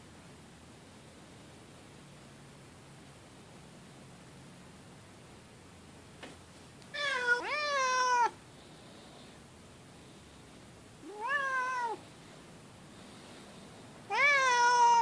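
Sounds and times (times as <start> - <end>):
cat meowing: 6.9 - 8.4, 11.0 - 12.0, 14.1 - 15.0.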